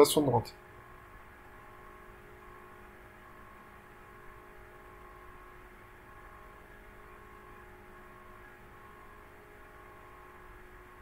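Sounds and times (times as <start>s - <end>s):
faint background hum and hiss: 0.0s - 11.0s.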